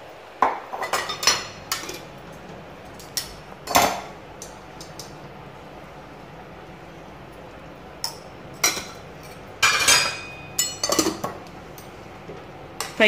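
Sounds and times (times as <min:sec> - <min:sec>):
steel utensils clinking on a pan: 0:09.6 - 0:11.3.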